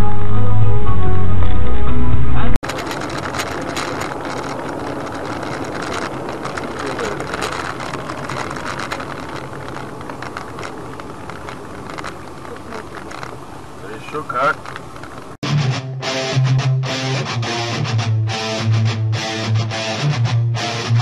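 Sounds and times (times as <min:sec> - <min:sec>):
car engine and road rumble: 0:01.3 - 0:15.4
small clicks and rattles: 0:02.6 - 0:15.4.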